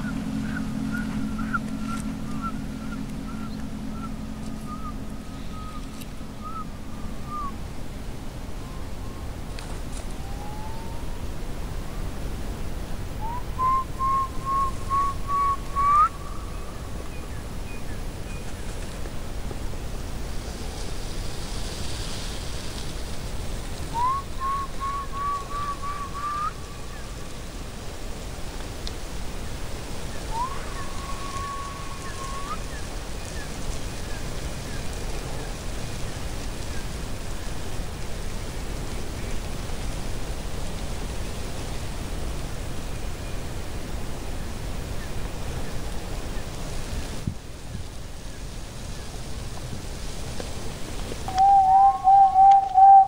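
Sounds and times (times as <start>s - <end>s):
rising whistle-like tone: 0.0s - 7.6s, 10.2s - 11.1s, 13.2s - 16.2s, 24.0s - 26.5s, 51.3s - 53.0s
steady hiss-like noise: 0.0s - 53.0s
steady rushing noise: 0.0s - 53.0s
faint falling chirps: 51.3s - 53.0s
short whistled notes: 51.3s - 53.0s.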